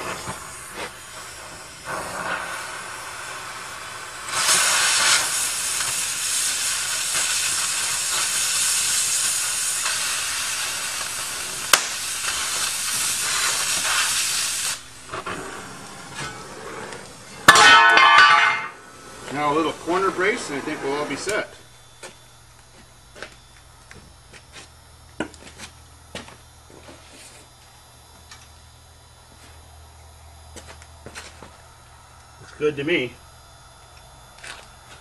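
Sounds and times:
gas cutting torch hissing: 0:00.0 - 0:23.4.

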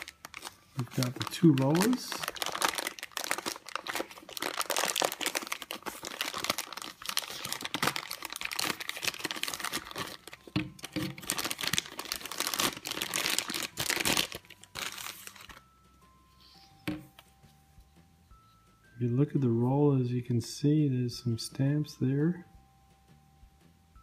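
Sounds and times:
plastic bag crinkling: 0:00.0 - 0:15.6.

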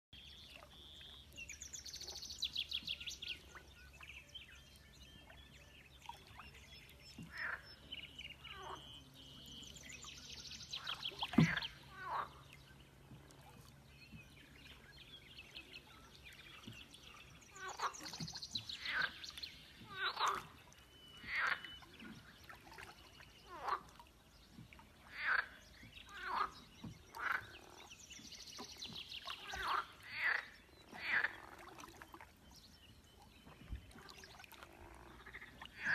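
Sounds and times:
frogs trilling and croaking: 0:21.2 - 0:21.7, 0:25.0 - 0:26.6.

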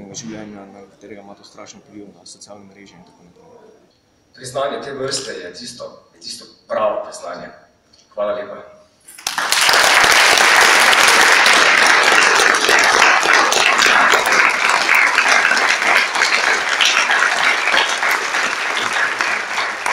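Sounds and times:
audience applauding: 0:09.1 - 0:19.9.

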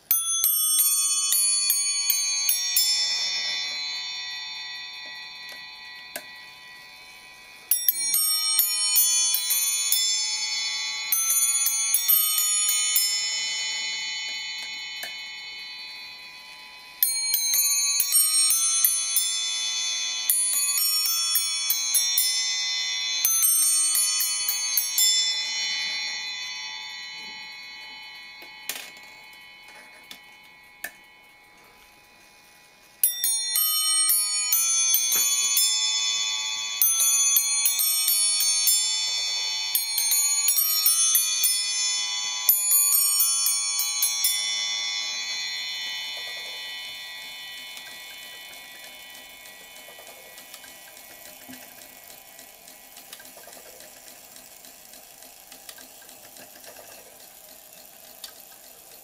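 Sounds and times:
clock chiming bells: 0:00.0 - 0:59.0
clock mechanism clicks: 0:47.2 - 0:59.0.

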